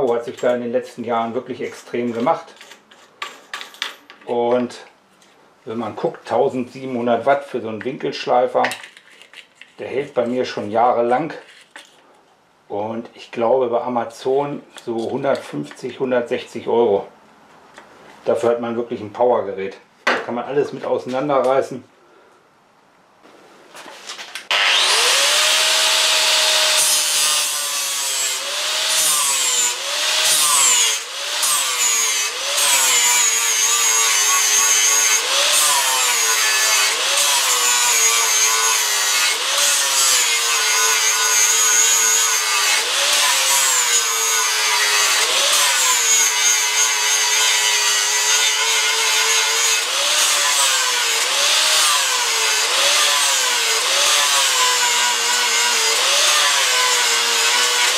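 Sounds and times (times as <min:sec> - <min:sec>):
angle grinder grinding steel: 0:24.5 - 0:57.9.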